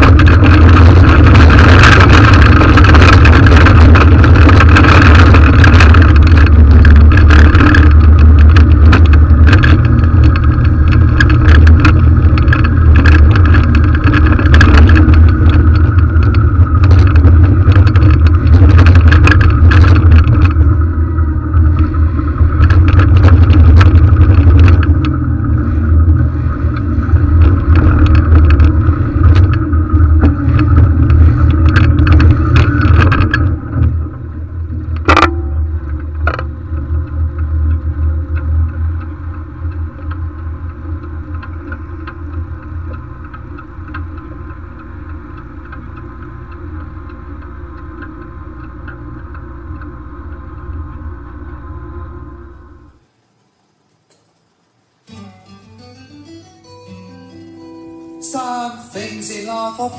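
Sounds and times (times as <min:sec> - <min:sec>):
armoured vehicle engine running: 0:00.0 - 0:53.1
vehicle rattling and clattering: 0:00.0 - 0:53.1
sharp knocks: 0:35.0 - 0:36.5.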